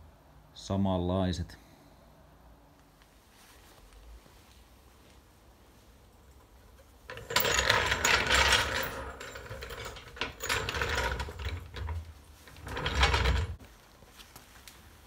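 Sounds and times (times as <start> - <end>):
floor jack rattling on concrete: 7.1 - 13.6.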